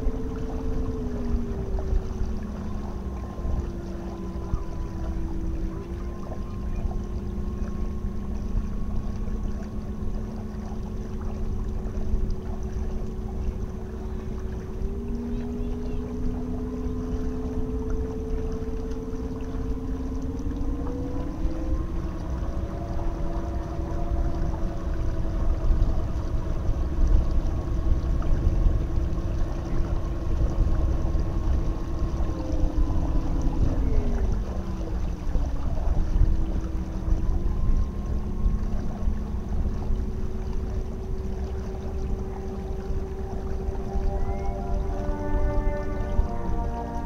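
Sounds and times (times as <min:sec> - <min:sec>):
electric motor whine: 0:00.0 - 0:47.0
steady low rumble: 0:00.0 - 0:47.0.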